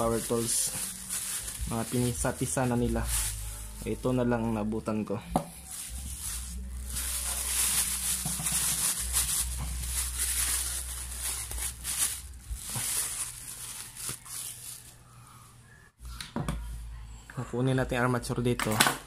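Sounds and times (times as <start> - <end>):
plastic bag crinkling: 0.0 - 4.6, 5.5 - 15.0.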